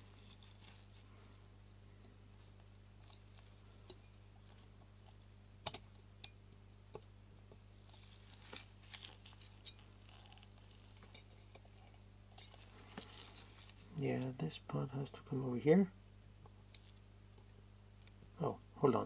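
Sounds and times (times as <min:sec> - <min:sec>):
steady low hum: 0:00.0 - 0:19.0
small parts and tools clicking: 0:05.0 - 0:07.1.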